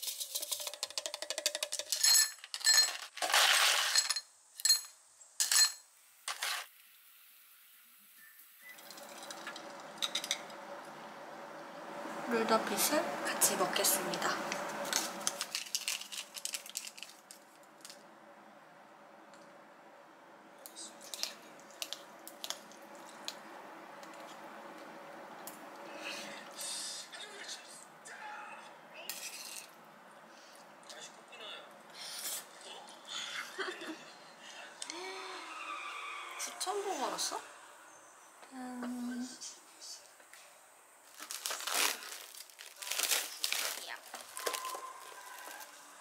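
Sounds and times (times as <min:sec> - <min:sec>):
glassware clinking: 0:01.6 - 0:03.1, 0:03.8 - 0:05.8
scraping rustle: 0:06.3 - 0:06.7, 0:41.1 - 0:45.8.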